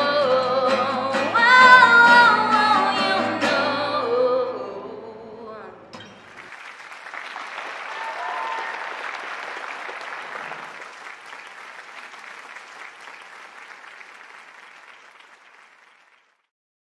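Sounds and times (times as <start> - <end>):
audience applauding: 6.0 - 16.5.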